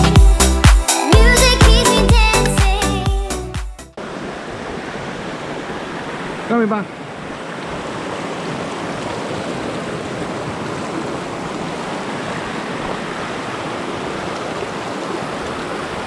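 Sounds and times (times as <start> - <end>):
stream rushing over stones: 4.0 - 16.0.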